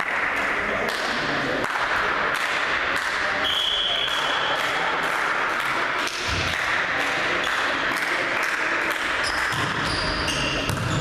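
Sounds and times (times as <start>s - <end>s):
sports hall din: 0.0s - 11.0s
volleyball being struck: 1.6s - 11.0s
referee whistle: 3.4s - 4.6s
shoe squeaks on court: 9.2s - 11.0s.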